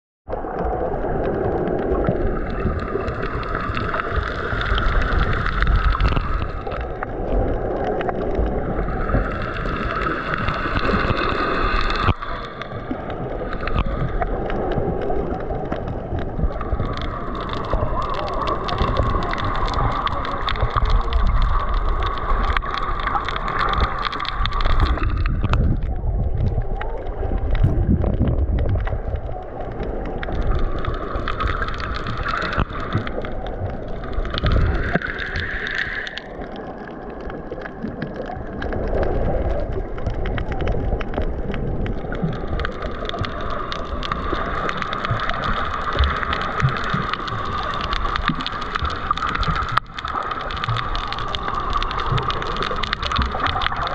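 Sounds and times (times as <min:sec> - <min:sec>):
underwater water sloshing: 0:00.3 - 0:53.9.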